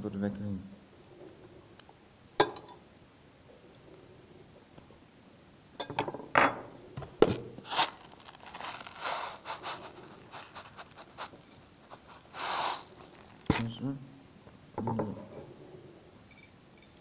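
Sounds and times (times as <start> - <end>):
knife and packaging clicks and scrapes: 7.2 - 13.7.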